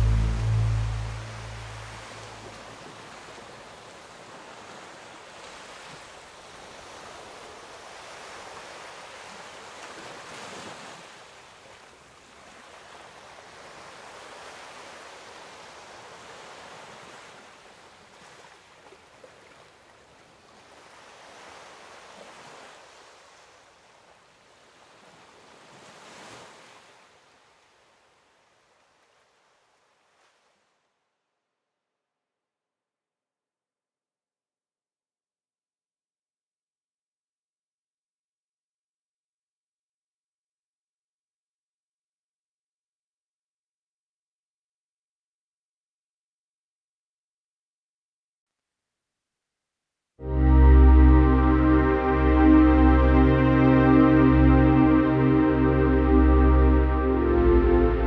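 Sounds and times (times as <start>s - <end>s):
ocean waves breaking: 0.0s - 19.8s, 50.2s - 58.0s.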